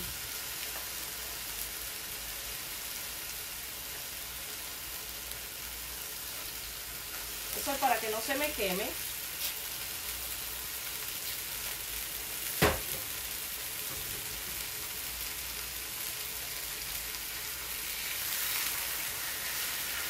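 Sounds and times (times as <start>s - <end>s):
chicken sizzling on griddle pan: 0.0s - 20.0s
sharp knock: 12.6s - 13.0s.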